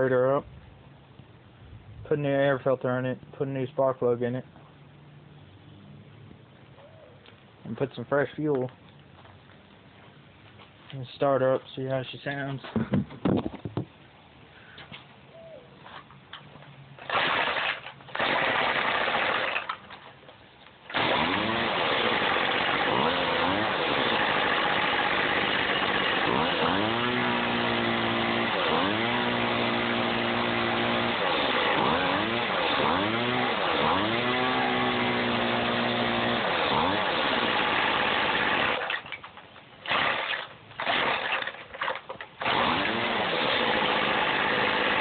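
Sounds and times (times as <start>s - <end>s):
string trimmer engine revving: 17.0s - 19.7s, 20.9s - 39.1s, 39.8s - 45.0s.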